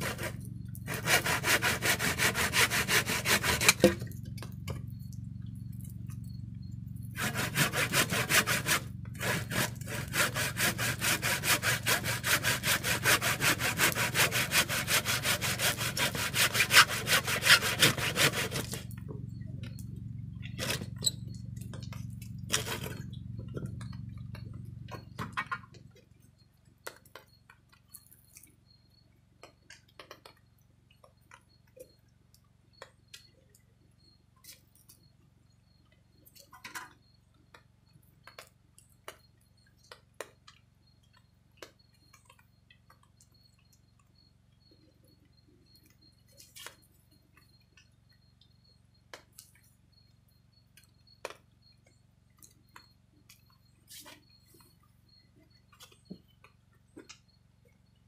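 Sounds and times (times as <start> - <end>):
wood sawing: 0.0 - 4.1, 7.1 - 18.9, 22.5 - 23.1.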